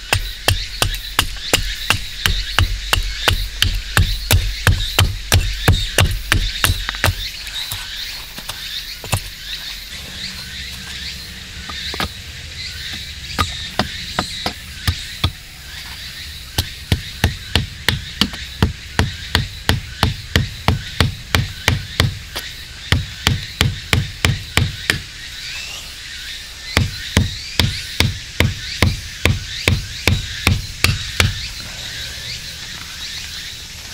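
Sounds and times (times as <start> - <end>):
hatchet knocking wooden stake: 0.0 - 7.8, 13.4 - 15.4, 16.6 - 25.0, 26.8 - 31.4.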